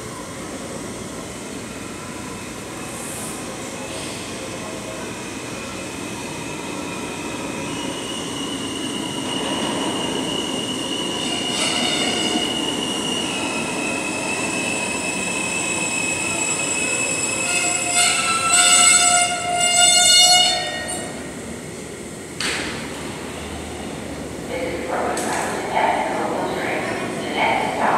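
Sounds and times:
subway train running noise: 0.0s - 27.9s
wheel and brake squeal: 15.6s - 21.1s.

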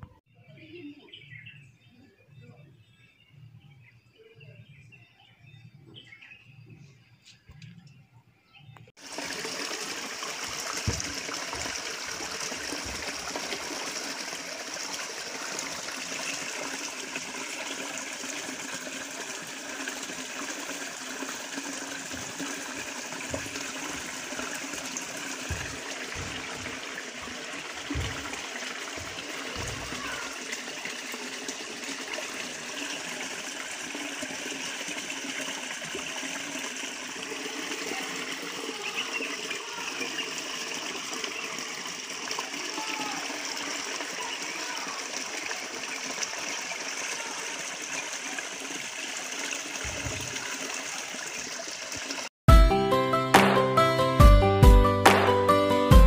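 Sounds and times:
water gushing into a bucket: 9.0s - 52.3s
low thumps: 25.4s - 28.4s.

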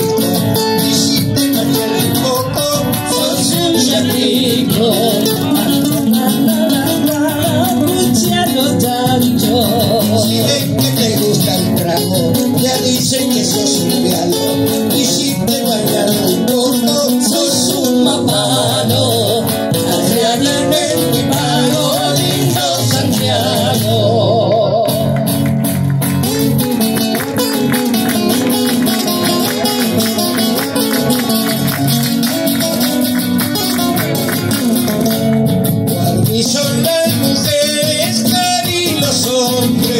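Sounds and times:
strummed acoustic guitars: 0.0s - 39.9s
voices singing with vibrato: 14.5s - 25.0s.

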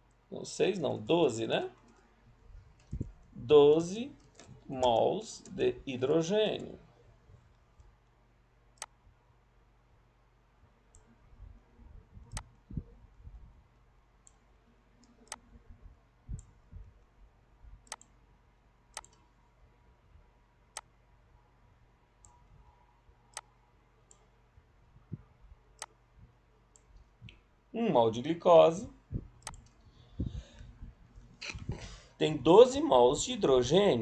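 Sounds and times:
soft low thumps: 28.9s - 29.5s.

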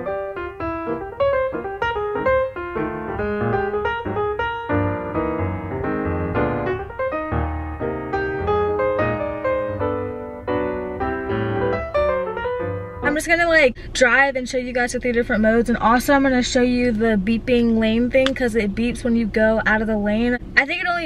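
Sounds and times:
piano music: 0.0s - 13.3s.

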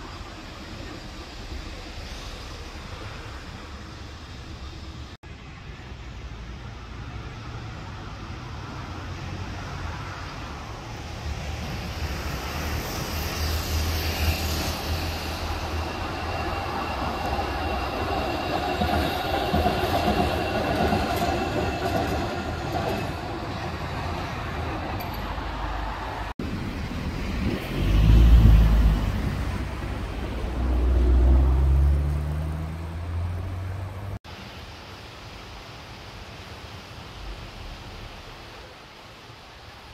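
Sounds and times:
suspension railway car rumbling: 9.2s - 34.2s.

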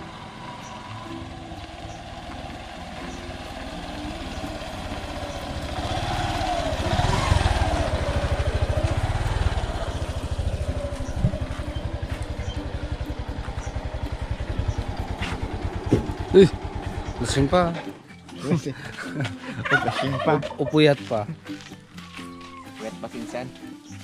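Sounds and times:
motorcycle engine running: 0.0s - 18.6s
rising and falling whine: 3.0s - 17.5s.

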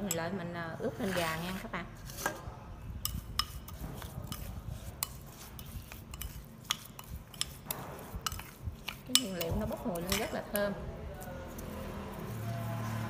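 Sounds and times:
spoon stirring in a bowl: 0.0s - 2.4s, 3.0s - 13.0s
spoon clinking against bowl: 3.0s - 10.6s.

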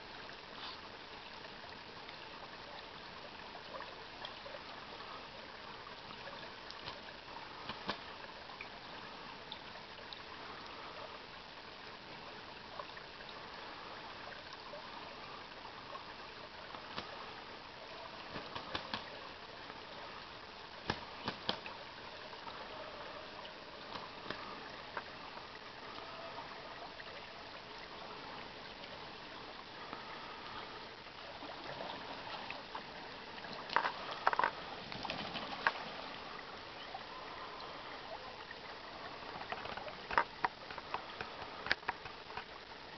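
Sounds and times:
creek trickling over gravel: 0.0s - 42.9s.

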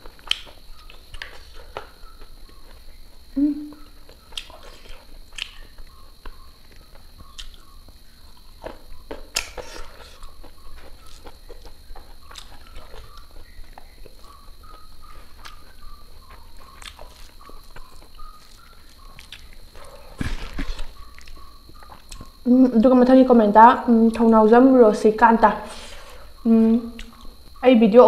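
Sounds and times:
mouth clicks: 0.0s - 2.0s, 3.4s - 8.0s, 8.6s - 22.4s, 25.9s - 27.6s
chewing: 0.0s - 22.5s, 25.8s - 27.6s.

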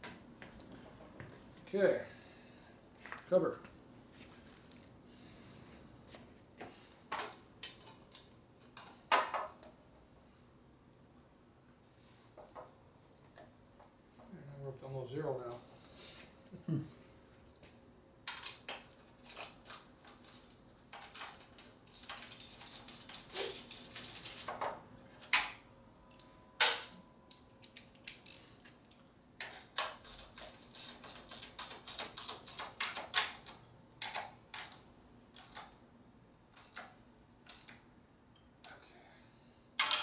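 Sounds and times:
hand tools clicking on metal parts: 26.1s - 26.7s, 27.3s - 34.8s, 35.4s - 35.8s, 36.6s - 37.8s.

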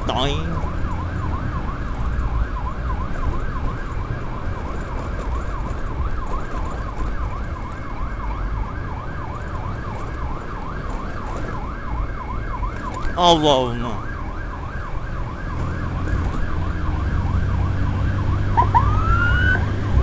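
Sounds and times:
rumble of wind and engine: 0.0s - 20.0s
electronic siren yelping: 15.7s - 19.7s.

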